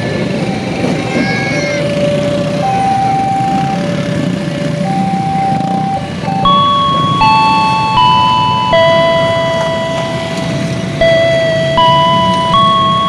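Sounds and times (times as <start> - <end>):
motorcycle traffic hum: 0.0 - 13.0
electronic chime melody: 2.6 - 4.0, 4.8 - 13.0.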